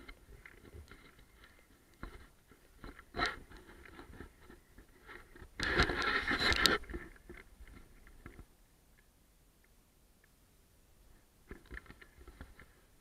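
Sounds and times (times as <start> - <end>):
camera rubbing against wall: 2.8 - 7.2.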